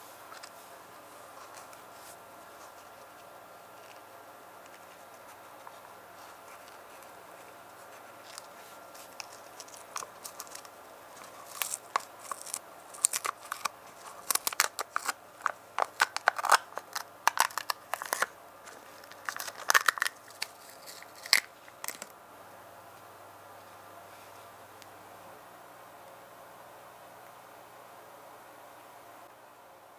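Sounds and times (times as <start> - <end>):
thin plastic crinkling: 4.6 - 22.1
tape peeling crackles: 7.7 - 22.1.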